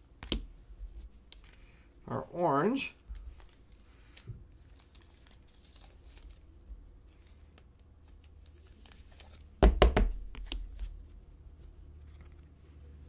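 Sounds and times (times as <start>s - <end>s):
soft plastic rustling: 2.9s - 9.6s, 10.6s - 13.0s.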